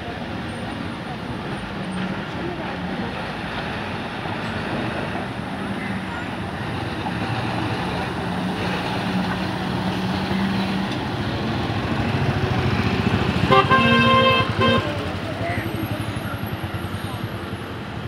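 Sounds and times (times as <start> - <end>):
truck diesel engine running: 0.1 - 18.0
vehicle horn blaring: 13.4 - 15.0.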